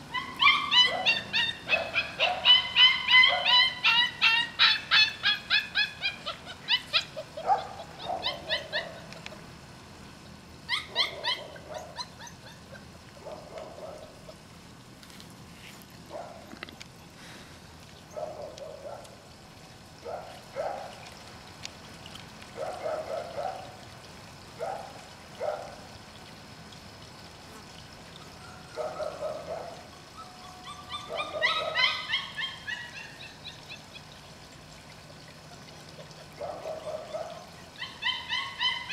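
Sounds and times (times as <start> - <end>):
puppies whining and yipping: 0.0 - 9.4, 10.7 - 13.0, 28.2 - 34.3, 35.4 - 38.9
puppies whimpering: 0.1 - 9.4, 10.7 - 12.9, 30.1 - 34.2, 35.6 - 38.9.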